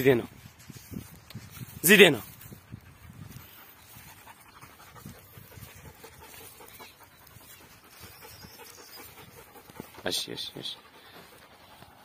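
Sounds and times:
dog panting: 2.5 - 12.0.

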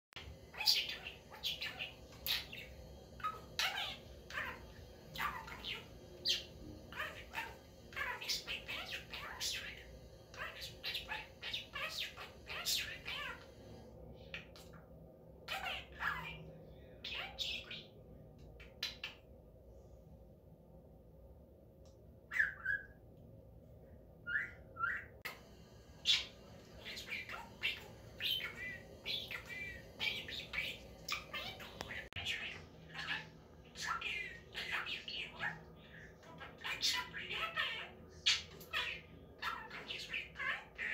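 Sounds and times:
budgerigar chirping and warbling: 0.5 - 13.4, 26.0 - 35.6.

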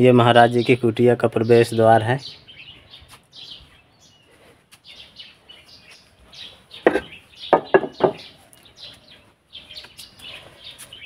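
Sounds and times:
small birds chirping: 0.0 - 11.0
loud thumps: 6.8 - 8.3.

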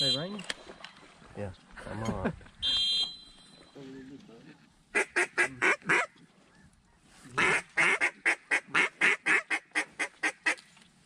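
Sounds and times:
waterfowl call short notes: 2.6 - 3.8.

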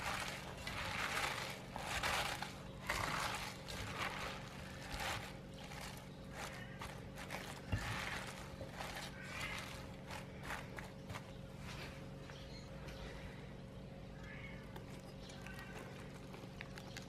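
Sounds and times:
cabbage leaves rustling and crunching: 0.0 - 12.2.

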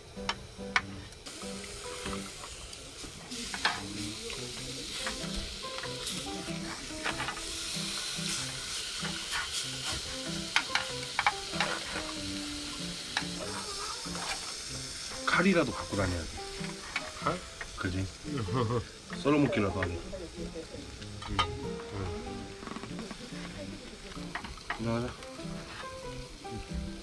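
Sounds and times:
meat sizzling in frying pan: 0.1 - 27.0
chopsticks clicking and scraping pan: 1.6 - 2.6, 3.3 - 14.6, 16.6 - 17.7.

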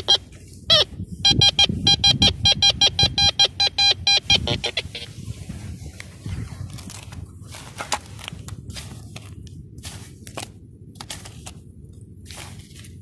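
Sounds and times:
metal detector short high beeps: 0.0 - 5.1.

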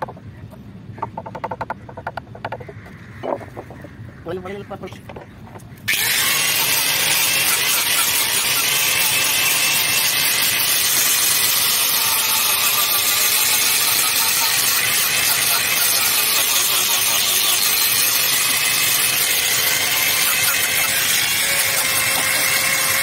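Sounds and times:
angle grinder sanding wood: 5.9 - 23.0.

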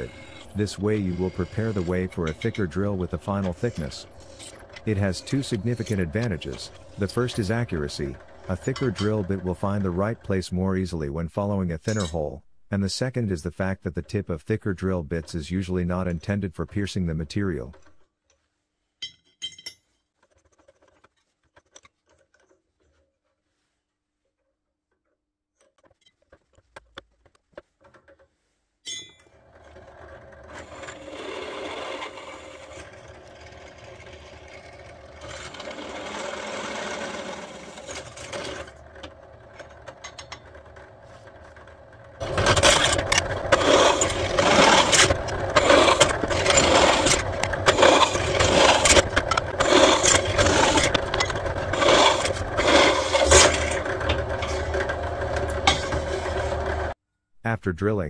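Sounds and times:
drill bit cutting metal: 0.0 - 10.2, 34.1 - 38.8, 42.2 - 56.9
drill motor humming: 0.0 - 10.2, 29.6 - 57.0.

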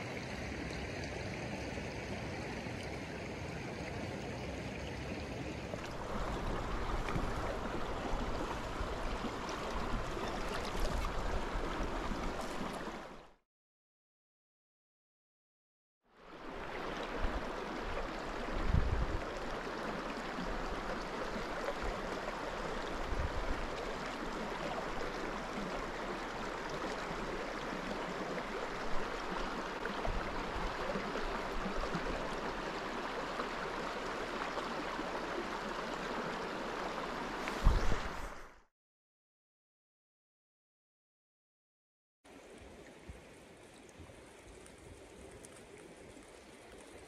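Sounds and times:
water rushing over rocks: 5.8 - 13.2.

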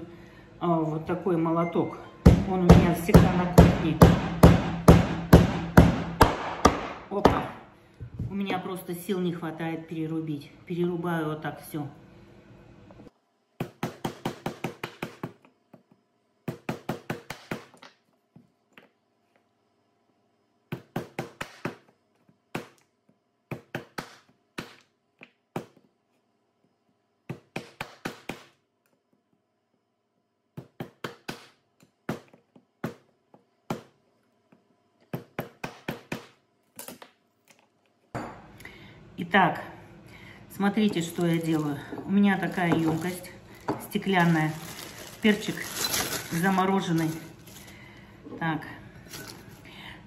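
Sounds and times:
knife chopping on wooden board: 2.3 - 7.5, 35.1 - 36.4.

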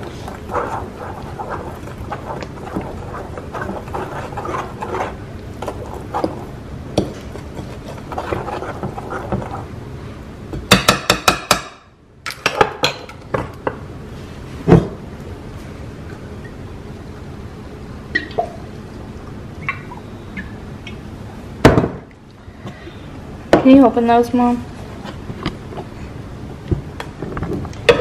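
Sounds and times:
utensil scraping ceramic bowl: 0.0 - 6.5, 7.1 - 9.7.

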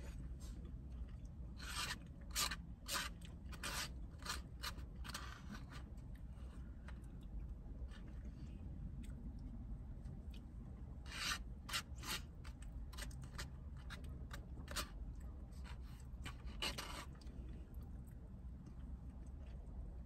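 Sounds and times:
plastic spoon scraping foam cup: 1.6 - 5.9, 11.1 - 17.2.

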